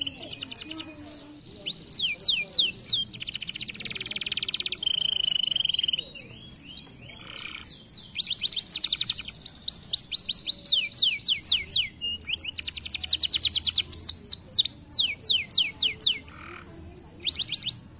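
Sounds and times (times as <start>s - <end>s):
canary singing: 0.0s - 17.9s.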